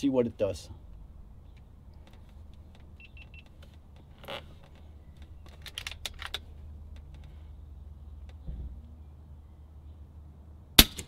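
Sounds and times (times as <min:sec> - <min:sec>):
short electronic beeps: 0:03.0 - 0:03.5
air rifle sharp clicks: 0:10.8 - 0:11.0.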